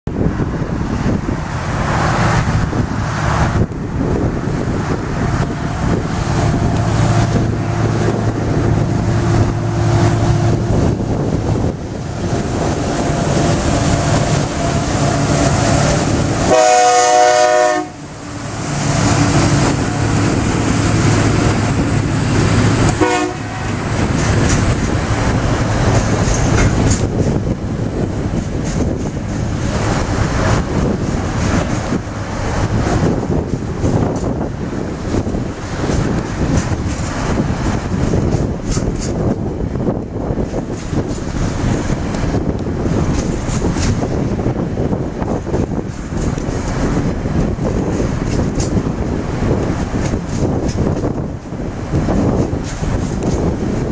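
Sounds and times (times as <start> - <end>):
locomotive engines under load: 0.1 - 53.9
train horn: 16.4 - 18.1, 22.8 - 23.9.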